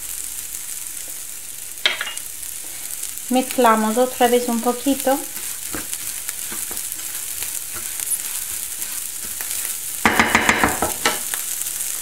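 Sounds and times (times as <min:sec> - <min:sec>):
rice sizzling in a pan: 0:00.0 - 0:12.0
spatula scraping a pan: 0:03.7 - 0:11.4.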